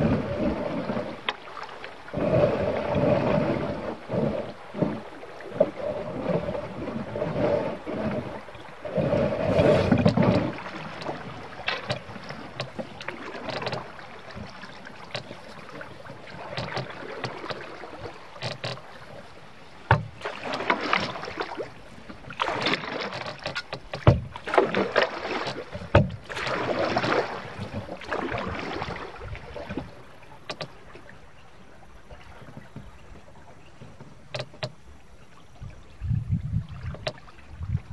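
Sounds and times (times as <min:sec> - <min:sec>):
paddle strokes splashing water: 0:00.0 - 0:37.9
sharp knocks: 0:23.4 - 0:24.4.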